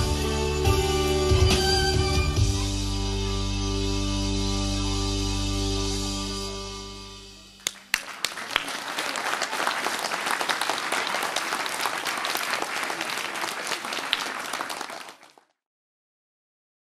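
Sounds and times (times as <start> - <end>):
audience applauding: 7.6 - 15.6.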